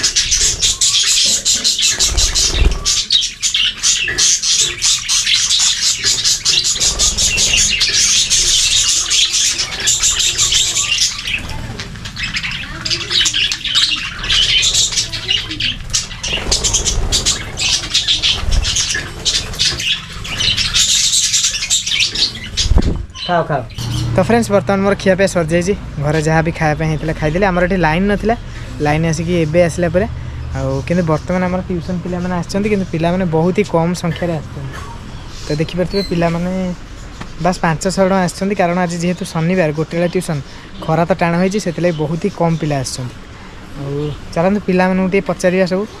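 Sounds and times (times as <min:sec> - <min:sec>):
budgerigars chattering: 0:00.0 - 0:46.0.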